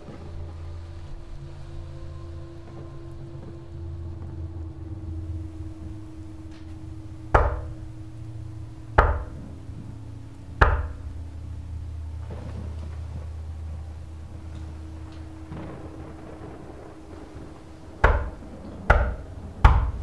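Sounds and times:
low steady drone: 0.0s - 20.0s
loud echoing knocks: 5.1s - 20.0s.

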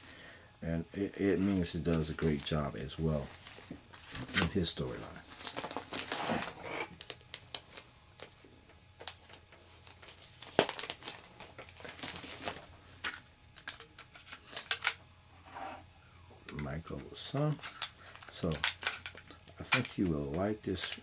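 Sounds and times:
plastic bag crinkling: 1.4s - 8.4s, 9.0s - 15.0s.

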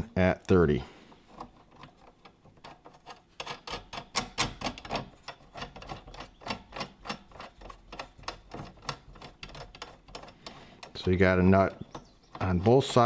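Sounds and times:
nut spinning on threaded rod: 1.3s - 13.0s.

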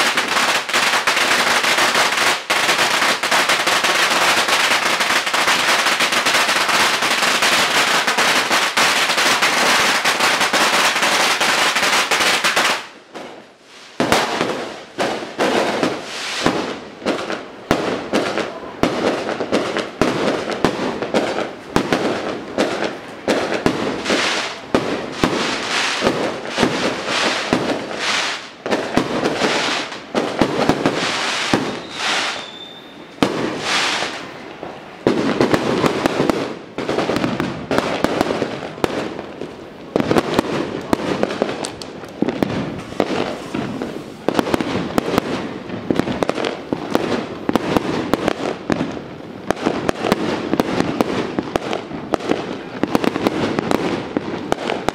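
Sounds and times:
firecrackers crackling and banging: 0.0s - 54.9s
high firework whistle: 30.9s - 34.5s.

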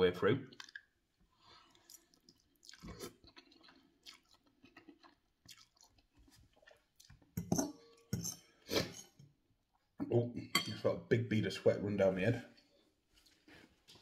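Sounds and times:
noodles slurped: 0.5s - 7.0s
wet chewing: 0.5s - 7.4s
metal fork scraping glass bowl: 7.4s - 9.2s.

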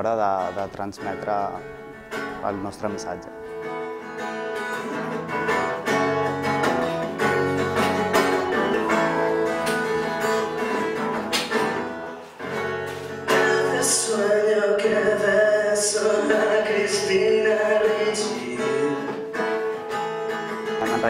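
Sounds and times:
acoustic guitar through a pa: 0.0s - 21.0s
man singing: 13.2s - 19.4s, 20.8s - 21.0s.

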